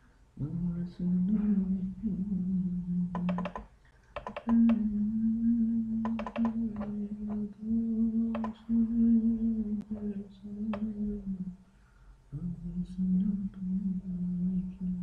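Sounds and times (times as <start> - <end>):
man humming low note: 0.4 - 3.4, 4.4 - 11.6, 12.3 - 15.0
keyboard and mouse clicks: 3.1 - 4.8, 6.0 - 7.4, 8.3 - 8.6.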